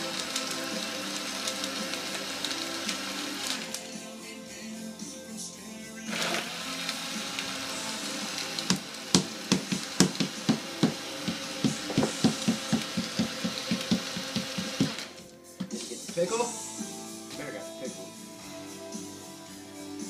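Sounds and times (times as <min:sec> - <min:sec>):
countertop blender running: 0:00.0 - 0:03.9, 0:06.1 - 0:15.2.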